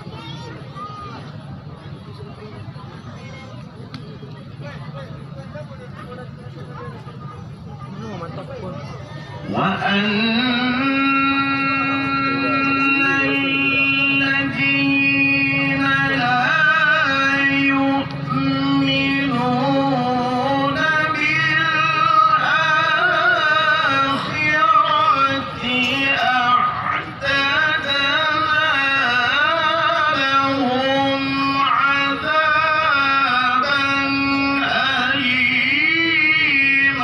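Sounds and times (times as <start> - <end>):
man reciting melodically: 9.4 - 37.0.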